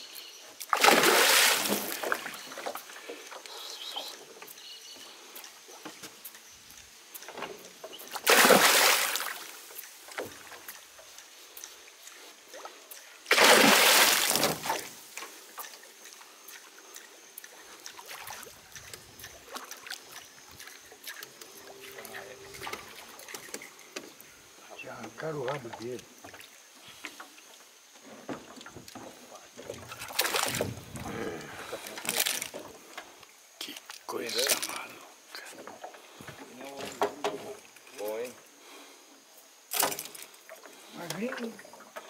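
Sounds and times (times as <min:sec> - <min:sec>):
water noise: 0:00.0 - 0:38.9, 0:39.6 - 0:42.0
loud water splashes: 0:00.7 - 0:02.4, 0:08.2 - 0:09.6, 0:13.3 - 0:15.0, 0:30.1 - 0:30.8.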